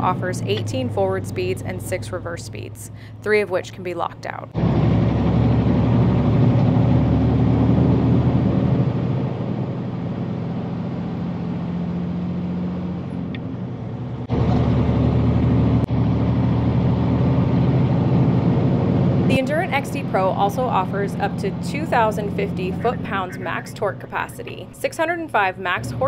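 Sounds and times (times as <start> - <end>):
diesel truck engine running: 0.0 - 26.0.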